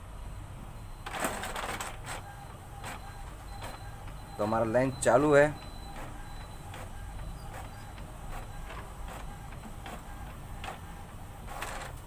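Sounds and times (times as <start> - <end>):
scanner motor hum: 2.2 - 11.4.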